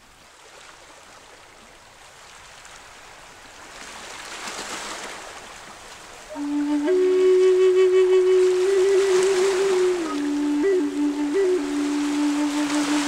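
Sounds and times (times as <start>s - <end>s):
waves lapping against rocks: 0.0s - 7.5s, 8.3s - 13.0s.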